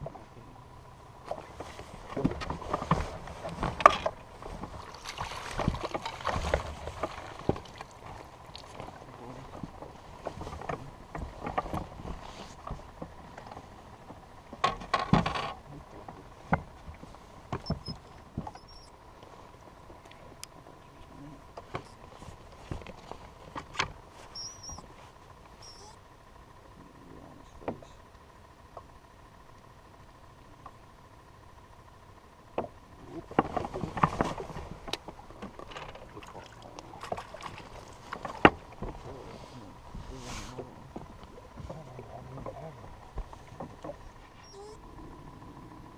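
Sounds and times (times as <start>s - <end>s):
faint steady tone: 0.0s - 45.9s
gear knocking on boat: 1.2s - 18.9s, 32.5s - 40.0s
water splashing: 4.2s - 9.6s, 36.0s - 39.3s.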